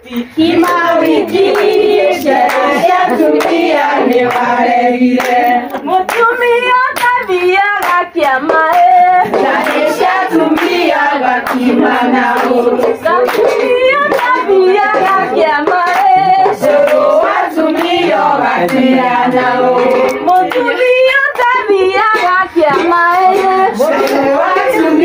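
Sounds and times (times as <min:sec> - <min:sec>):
rhythmic hand clapping: 0:00.0 - 0:25.0
women singing together: 0:00.0 - 0:25.0.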